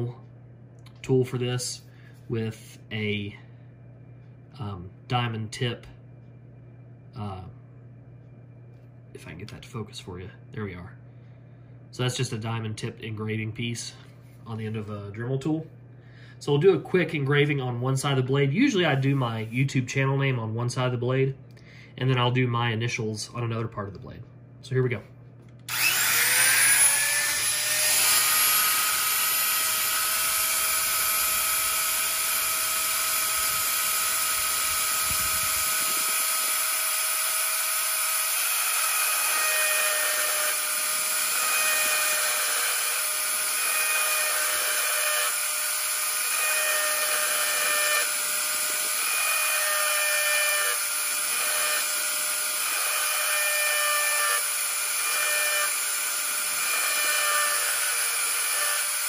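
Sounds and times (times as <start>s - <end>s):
rotary tool engraving steel: 25.7s - 59.0s.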